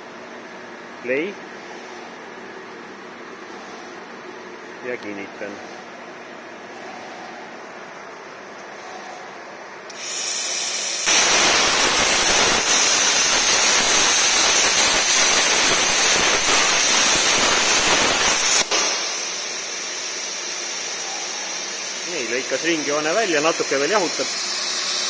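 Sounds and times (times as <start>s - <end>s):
air hissing through torch: 9.9s - 25.0s
plasma arc loud steady hiss: 9.9s - 25.0s.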